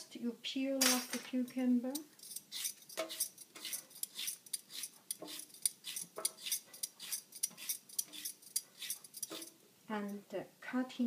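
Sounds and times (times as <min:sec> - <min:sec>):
vegetable peeler scraping cucumber: 0:01.9 - 0:09.6.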